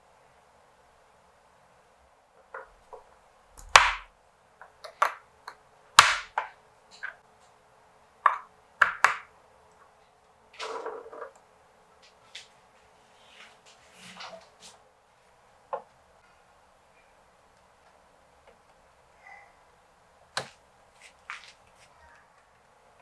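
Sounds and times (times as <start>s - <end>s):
plastic tubes clicking and knocking: 8.2s - 9.3s
scraping rustle: 12.0s - 14.8s.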